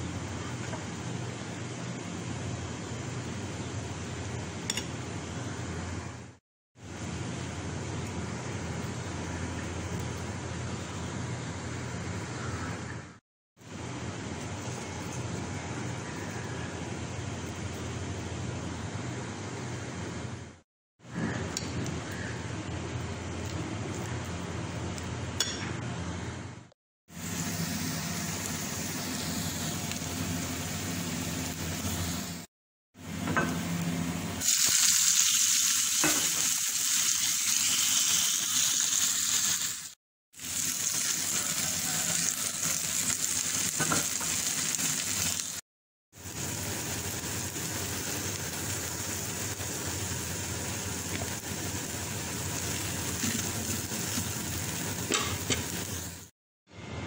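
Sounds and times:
corn sizzling in oil: 0:27.1 - 0:32.5, 0:34.4 - 0:56.3.

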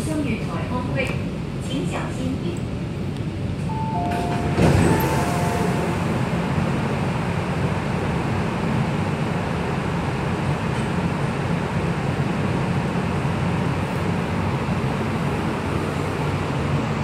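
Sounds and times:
low hum of stopped train: 0:00.0 - 0:17.0
train doors sliding open: 0:03.5 - 0:06.9
two-note descending chime: 0:03.7 - 0:06.0.

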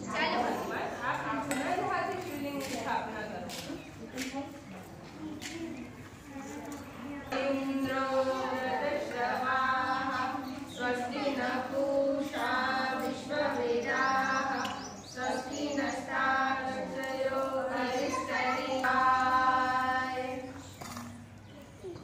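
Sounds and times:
women chanting a hymn: 0:07.2 - 0:20.9.

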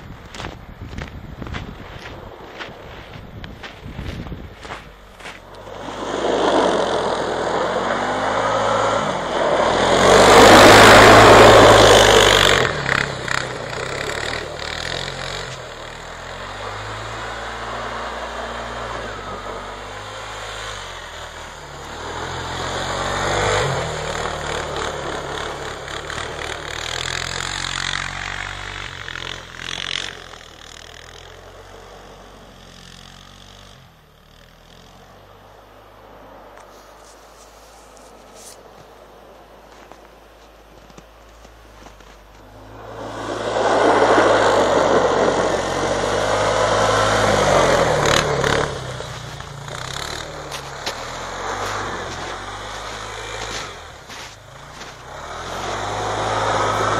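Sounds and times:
quad engine revving: 0:04.6 - 0:35.4, 0:42.5 - 0:56.9.

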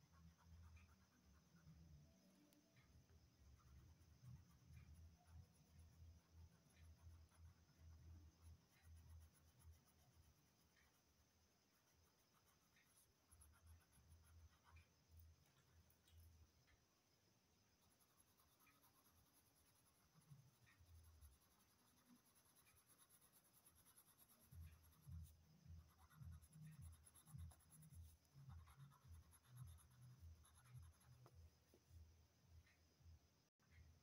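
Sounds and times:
pencil scratching on paper: 0:03.6 - 0:14.9, 0:17.8 - 0:31.3.

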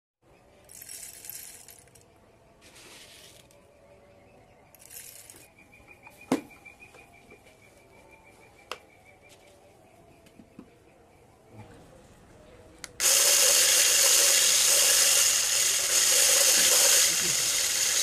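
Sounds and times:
nuts rattling into glass jar: 0:00.7 - 0:02.1, 0:04.8 - 0:05.5.

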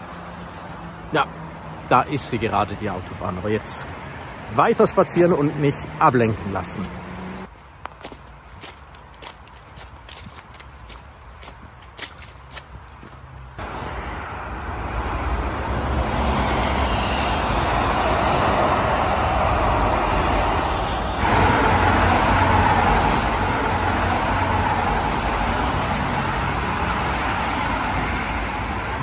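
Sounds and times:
motorway traffic tyre noise: 0:00.0 - 0:29.0.

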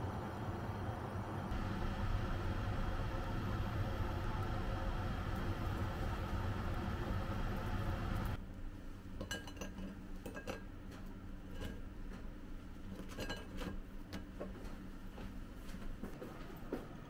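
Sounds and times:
steady hiss: 0:01.5 - 0:08.4.

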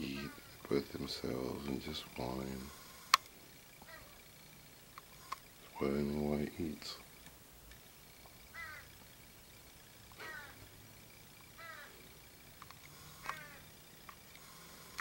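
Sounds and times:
young crows whining begging calls: 0:00.1 - 0:00.7, 0:03.8 - 0:04.4, 0:08.4 - 0:09.0, 0:10.1 - 0:12.2, 0:12.9 - 0:13.8.

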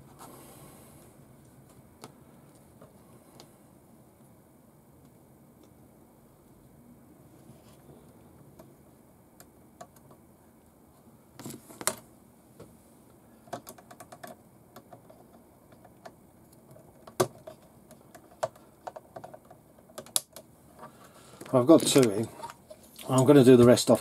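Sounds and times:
small parts clicking and tapping: 0:13.4 - 0:23.3
parts clattering: 0:20.8 - 0:24.0.

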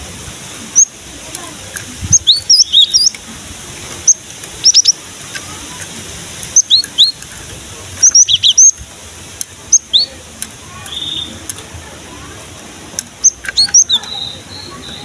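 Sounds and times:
high-pitched bird chirps: 0:00.7 - 0:01.0, 0:02.1 - 0:03.2, 0:04.0 - 0:05.0, 0:06.4 - 0:07.2, 0:08.0 - 0:08.8, 0:09.7 - 0:10.2, 0:10.8 - 0:11.4, 0:13.2 - 0:15.0.

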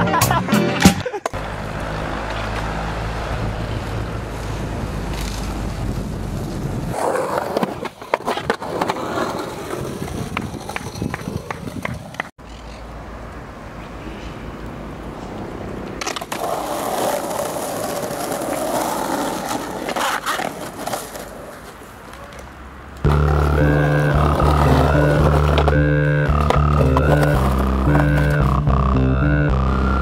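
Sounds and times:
skateboard wheels rolling on paving: 0:01.3 - 0:12.3, 0:14.6 - 0:29.0
skateboard clicks and knocks on concrete: 0:06.9 - 0:12.5, 0:15.7 - 0:25.7.

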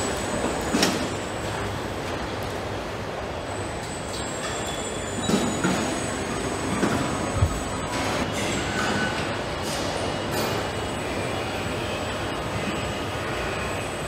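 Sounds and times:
assembly line machinery din: 0:03.2 - 0:14.0.

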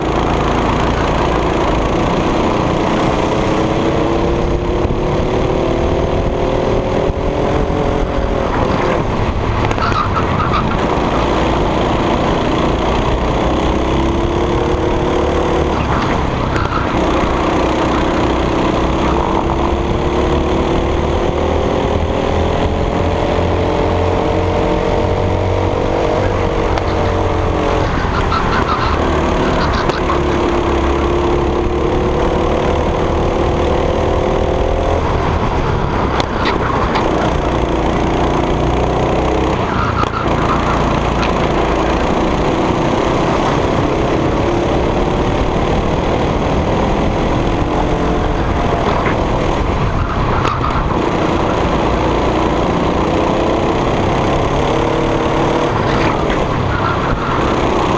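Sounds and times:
go-kart engine revving: 0:00.0 - 0:57.9.

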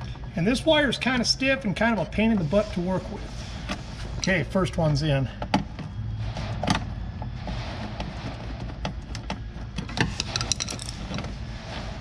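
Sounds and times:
steady low hum: 0:00.0 - 0:12.0
wire clicking and scraping: 0:08.9 - 0:11.3.

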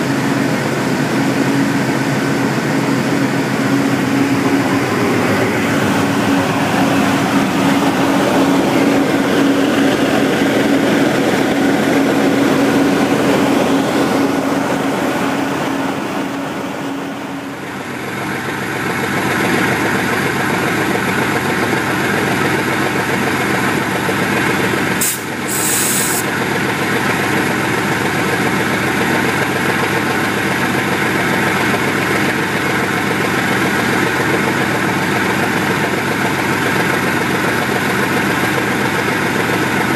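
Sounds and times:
steady whine: 0:00.0 - 0:21.9
diesel locomotive engine running: 0:00.0 - 0:39.9.

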